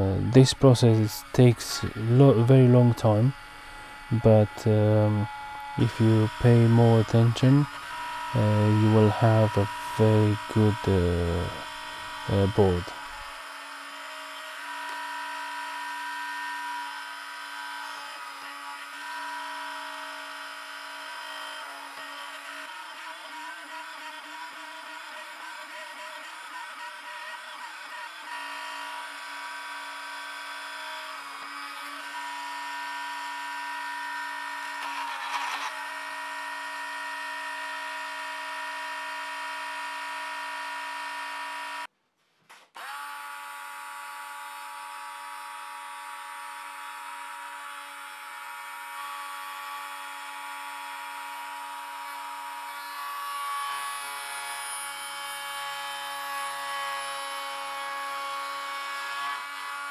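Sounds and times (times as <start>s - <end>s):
small electric drill whining: 0.9s - 41.9s, 42.8s - 59.9s.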